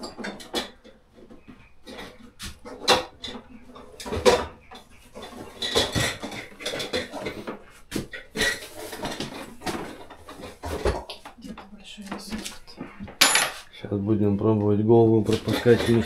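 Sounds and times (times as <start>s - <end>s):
dishware knocking and clinking: 5.2s - 7.4s, 13.1s - 13.6s.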